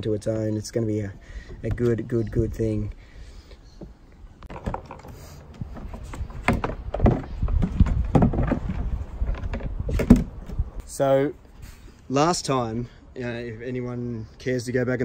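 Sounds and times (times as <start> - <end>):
hollow knocks and clunks of hatch lid: 5.7 - 10.6.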